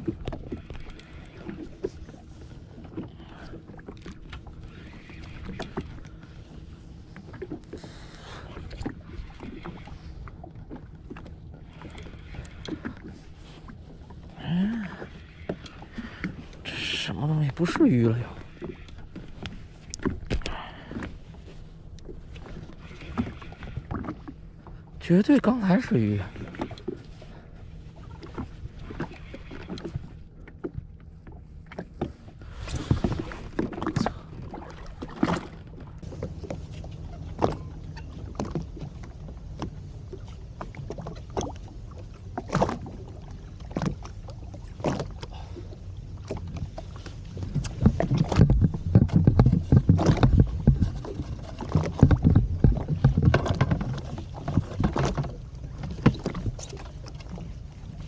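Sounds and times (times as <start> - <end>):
water splashing against hull: 0.0 - 58.0
knocks on hull: 47.7 - 55.4.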